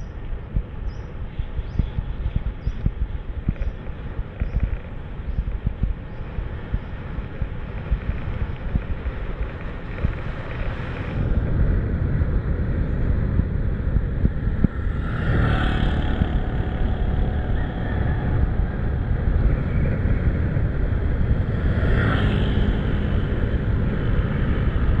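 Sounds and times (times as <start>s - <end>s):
road traffic: 0.0s - 25.0s
wind buffeting microphone: 0.0s - 25.0s
motor vehicle passing: 6.5s - 25.0s.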